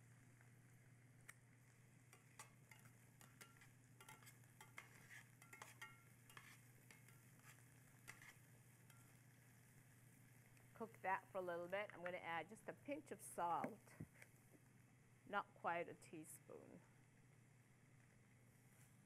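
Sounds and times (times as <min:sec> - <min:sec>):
faint sizzle in a skillet: 0:00.0 - 0:19.0
tongs clicking and scraping a pan: 0:01.2 - 0:11.0.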